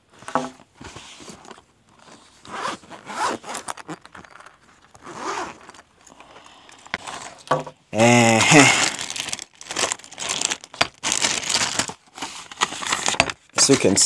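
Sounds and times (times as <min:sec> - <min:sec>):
zipper being pulled: 0:02.0 - 0:04.1, 0:05.0 - 0:05.8.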